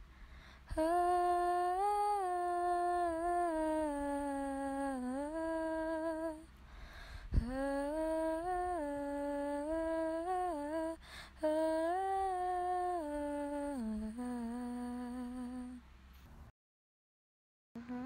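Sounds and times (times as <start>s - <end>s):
person humming melody: 0.7s - 6.5s, 7.3s - 15.8s, 17.8s - 18.0s.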